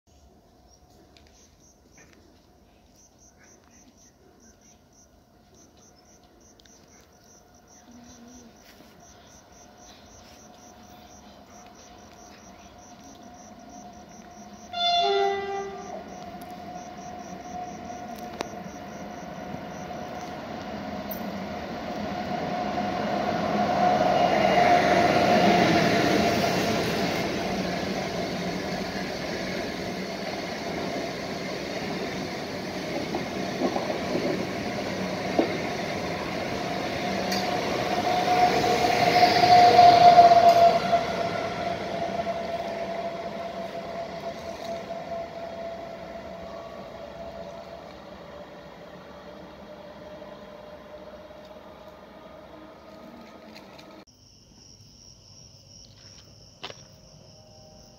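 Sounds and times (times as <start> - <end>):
train rumbling past with whine: 0.1 - 54.1
train wheel clicks: 26.5 - 38.4.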